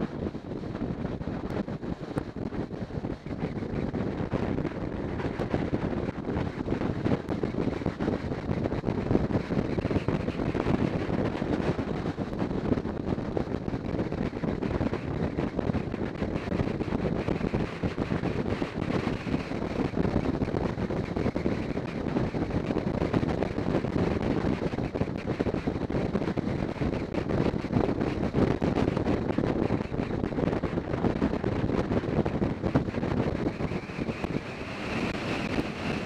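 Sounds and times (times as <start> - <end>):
motorcycle running: 0.0 - 36.0
wind rushing over microphone: 0.0 - 36.0.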